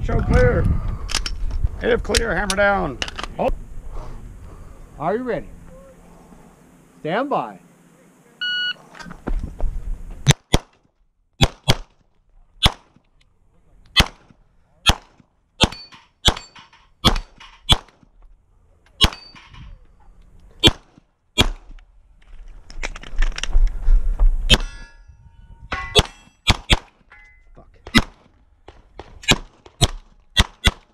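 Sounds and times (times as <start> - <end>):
pistol shots: 10.3 - 10.8, 11.4 - 11.9, 12.6 - 12.9, 13.9 - 18.0, 19.0 - 19.4, 20.6 - 21.7, 25.9 - 27.0, 27.9 - 28.3, 29.0 - 30.9.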